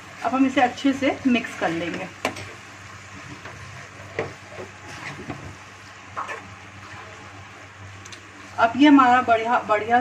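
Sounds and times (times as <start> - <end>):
faint sizzle: 0.0 - 10.0.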